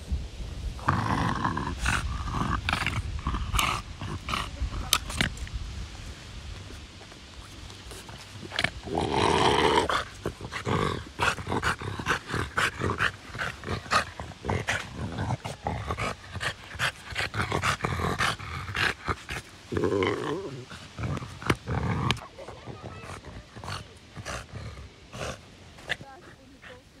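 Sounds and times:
dog grunts and yelps: 9.6 - 27.0.

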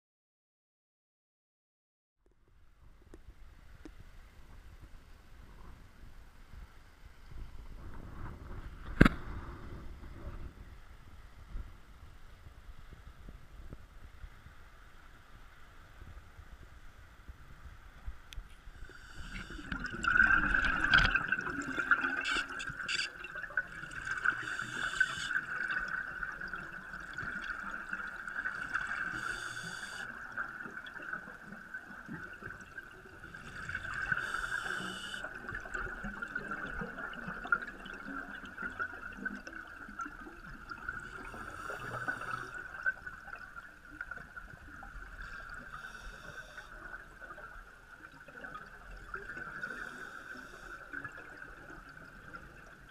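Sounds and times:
underwater bubbles rushing: 19.2 - 29.4, 30.1 - 46.1.

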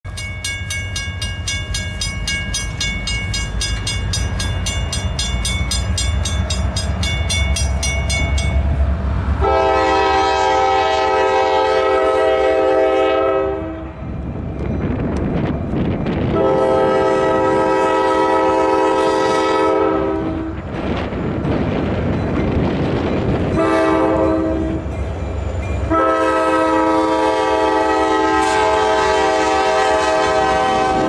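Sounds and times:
crossing warning bell ringing: 0.0 - 20.5, 21.1 - 31.0
train rumble: 0.0 - 31.0
locomotive air horn blast: 9.4 - 14.0, 16.3 - 20.7, 23.6 - 24.9, 25.9 - 31.0.

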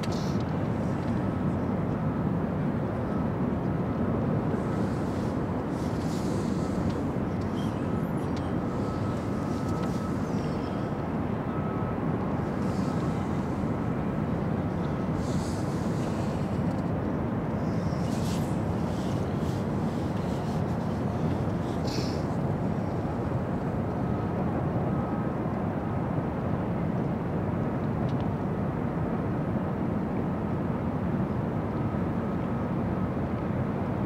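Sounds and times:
faint thin high whine: 0.0 - 25.8
low rumble of large ship: 0.0 - 34.0.

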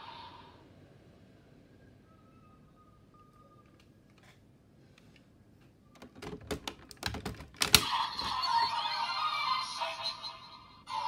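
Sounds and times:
plastic clicks: 6.0 - 8.3
loud plastic snap: 6.6 - 7.9.

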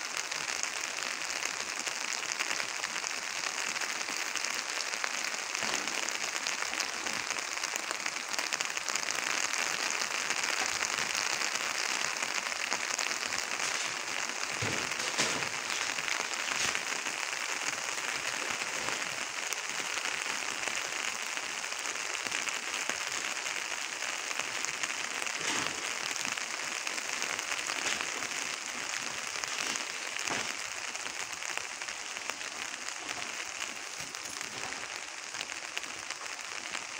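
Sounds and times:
heavy rain falling: 0.0 - 36.9
sharp close raindrop taps: 9.6 - 20.5, 22.9 - 36.9.

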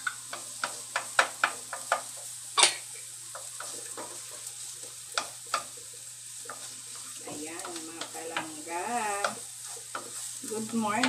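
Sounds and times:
wooden spatula knocking in a pan: 0.0 - 2.3, 5.1 - 5.8, 6.5 - 11.0
light sizzle of oil: 0.0 - 11.0.

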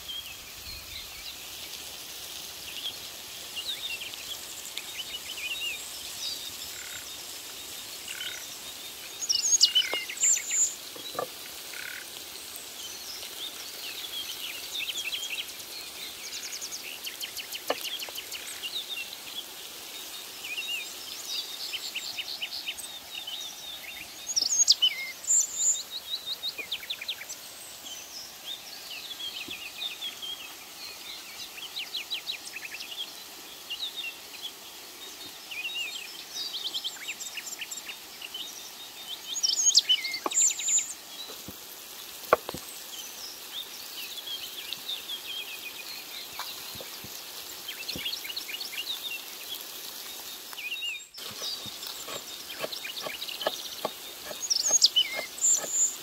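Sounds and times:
songbirds chirping and trilling: 0.0 - 56.0
steady hiss: 0.0 - 56.0.

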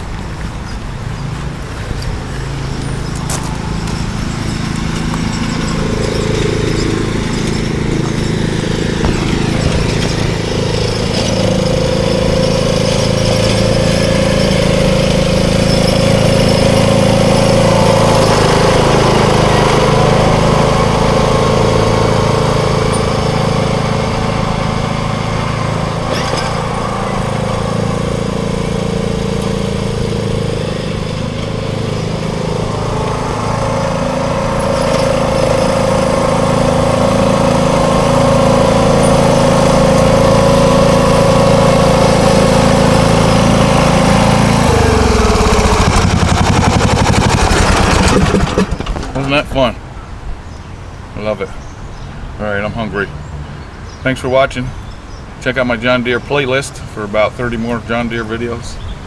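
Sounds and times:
lawn tractor engine running: 0.0 - 50.0.

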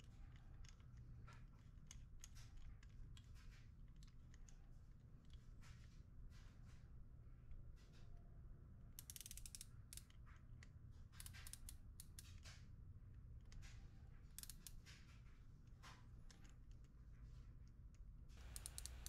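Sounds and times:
faint micrometer ratchet clicking: 9.0 - 12.7, 13.4 - 15.2, 17.9 - 19.0.

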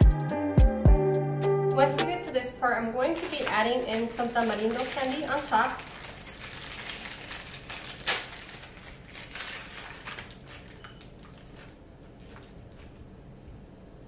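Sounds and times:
plastic wrapper crinkling: 3.1 - 13.1.

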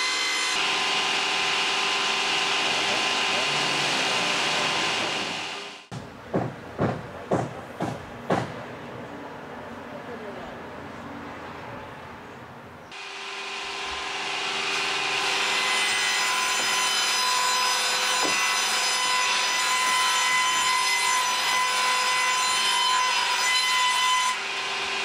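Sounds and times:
power saw cutting timber: 0.0 - 5.9, 12.9 - 25.0.

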